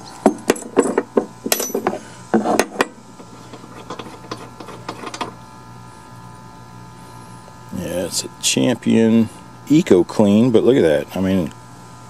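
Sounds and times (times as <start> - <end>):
metal clinks and rattles: 0.2 - 5.3.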